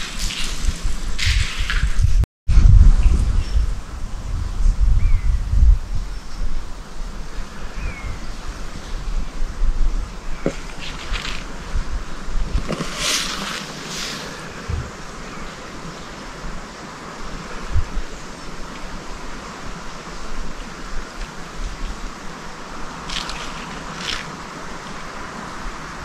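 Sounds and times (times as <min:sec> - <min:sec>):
rushing outdoor noise: 0:00.0 - 0:26.0
footsteps crunching on path: 0:10.4 - 0:11.6.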